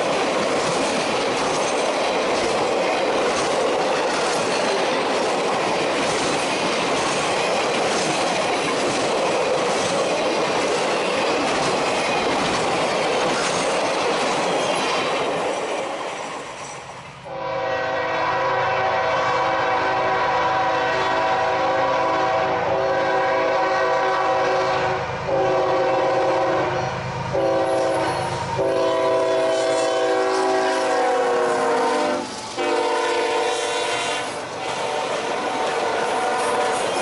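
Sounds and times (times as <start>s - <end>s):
locomotive horn blasts: 17.3s - 37.0s.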